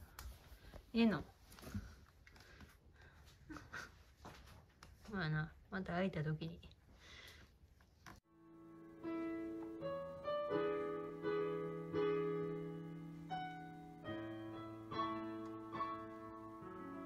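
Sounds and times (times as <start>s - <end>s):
slow piano music: 8.3s - 17.0s.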